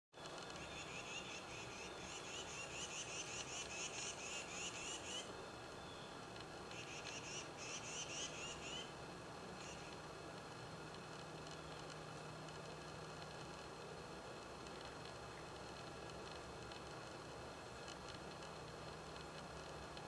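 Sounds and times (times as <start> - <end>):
small animal chirping: 6.7 - 8.9.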